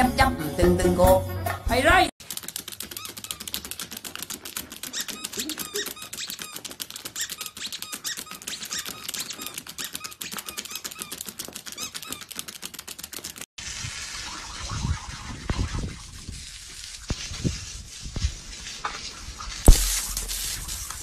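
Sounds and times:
claws tapping on screen: 2.2 - 13.5
puppy squeaks: 2.8 - 12.5.

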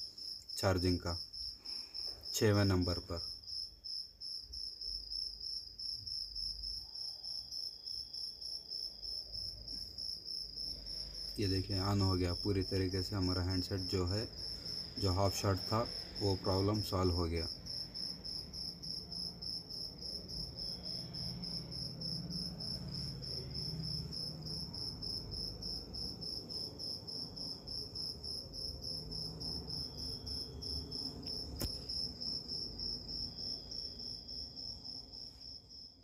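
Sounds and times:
insect chirping: 0.0 - 36.0
sharp click: 31.3 - 31.9.

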